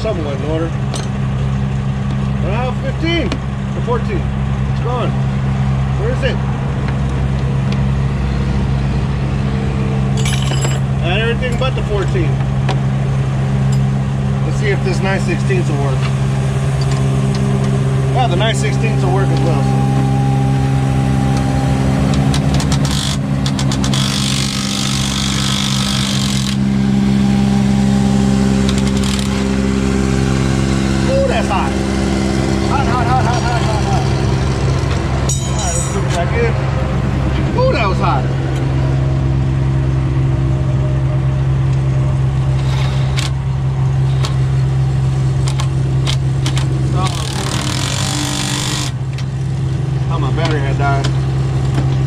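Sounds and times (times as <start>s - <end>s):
diesel truck engine idling: 0.0s - 48.0s
impact driver clicking and rattling: 22.1s - 26.6s, 28.7s - 29.4s.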